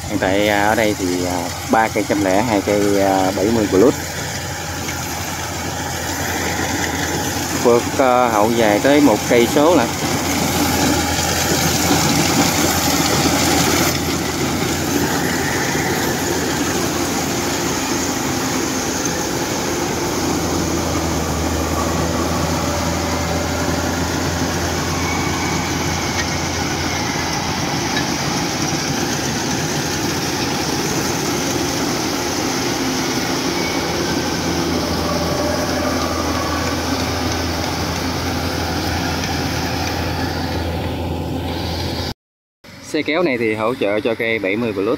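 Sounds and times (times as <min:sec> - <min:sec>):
combine harvester engine drone: 0:00.0 - 0:42.1, 0:42.7 - 0:44.9.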